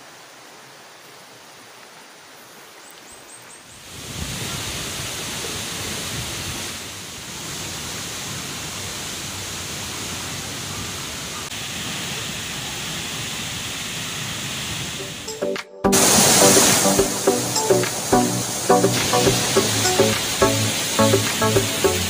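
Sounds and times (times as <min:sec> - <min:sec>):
waterfall pouring into pool: 0:03.8 - 0:15.3, 0:15.9 - 0:22.0.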